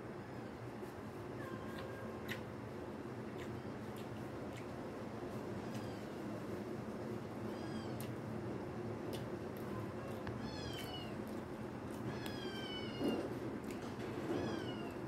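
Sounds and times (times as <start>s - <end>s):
animal crying: 7.4s - 8.1s, 10.0s - 11.4s, 12.0s - 13.4s, 14.3s - 15.0s.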